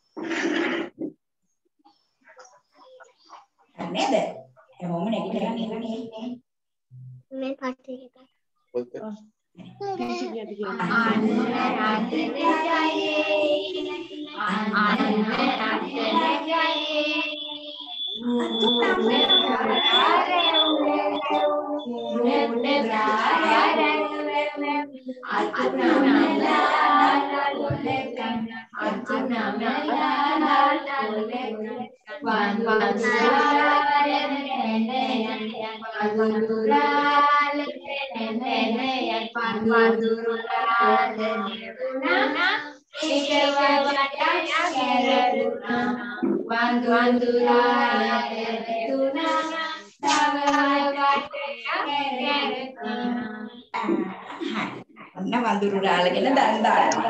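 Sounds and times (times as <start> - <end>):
children singing together: 10.1 - 54.4.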